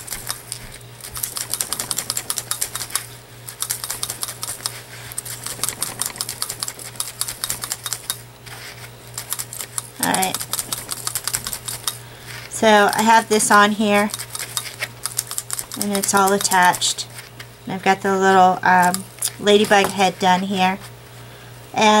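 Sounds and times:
felting needles crunchy clicks: 0:00.0 - 0:08.3, 0:09.1 - 0:17.0, 0:18.8 - 0:20.0.

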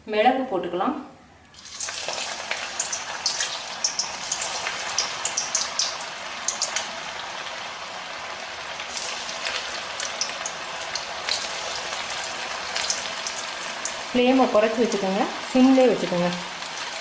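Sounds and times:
oil crackles and pops: 0:01.5 - 0:14.2
food deep-frying in hot oil: 0:01.5 - 0:17.0.

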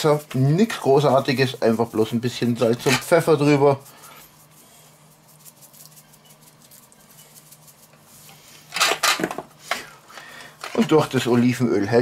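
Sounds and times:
hands rubbing meat: 0:00.0 - 0:08.7.

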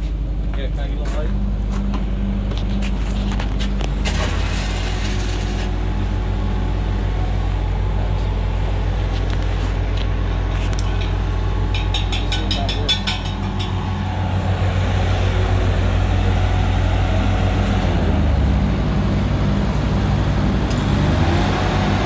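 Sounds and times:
welding machine engine humming: 0:01.4 - 0:12.3
welding arc crackling and hissing: 0:04.0 - 0:05.8.

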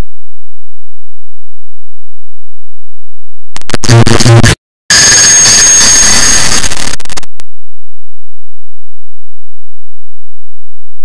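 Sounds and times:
harsh distorted digital noise: 0:03.6 - 0:07.3.

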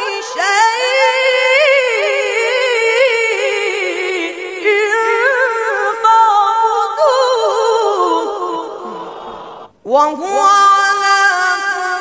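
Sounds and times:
boy reciting melodically: 0:00.0 - 0:12.0
boy breathing: 0:08.8 - 0:09.7.

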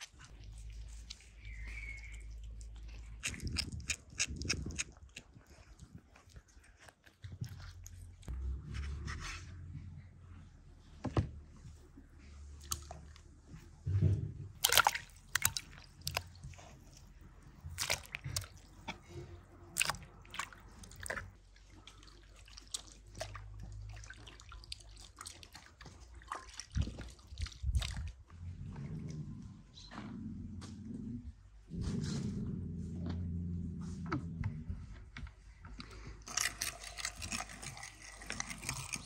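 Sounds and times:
wet squelching of meat by hand: 0:14.6 - 0:28.2.

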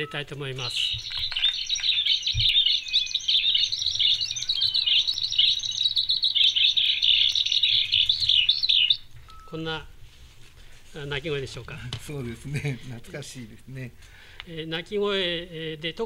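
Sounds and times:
skylark singing: 0:00.0 - 0:09.8.

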